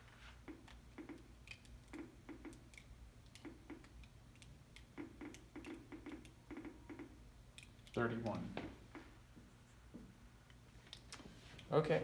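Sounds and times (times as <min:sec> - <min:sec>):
geiger counter clicking: 0:00.5 - 0:09.1.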